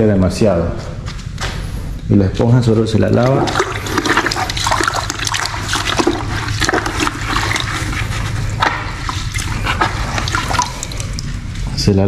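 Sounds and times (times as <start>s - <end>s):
sponge rinsed in bucket of water: 2.9s - 11.8s.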